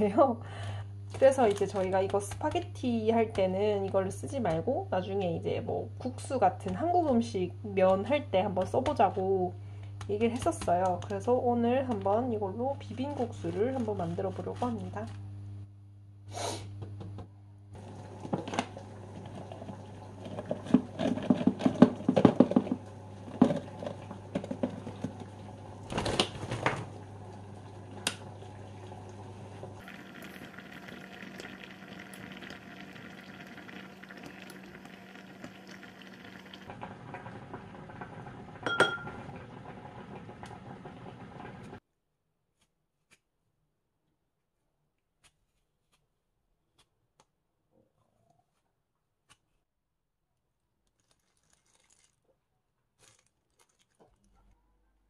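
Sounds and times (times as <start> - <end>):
pots and utensils clattering: 17.8 - 25.3, 38.6 - 39.4
boiling water hissing: 17.8 - 41.8.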